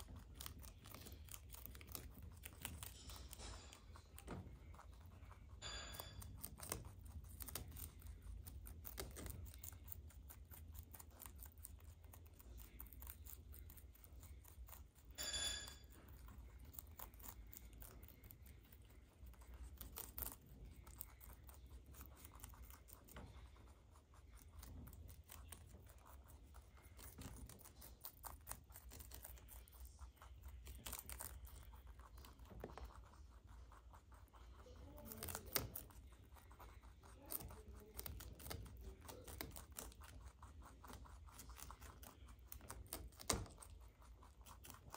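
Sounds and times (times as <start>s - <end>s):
rabbit squeak: 0.0s - 44.9s
rabbits crunching cabbage leaves: 0.0s - 44.9s.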